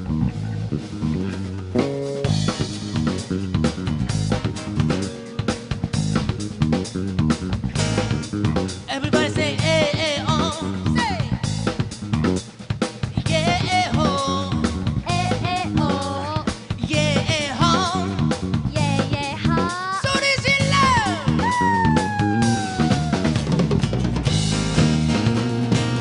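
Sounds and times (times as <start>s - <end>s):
drum kit beat: 0.0s - 26.0s
live band playing: 0.0s - 26.0s
lead vocal singing: 8.9s - 11.4s, 13.2s - 21.3s.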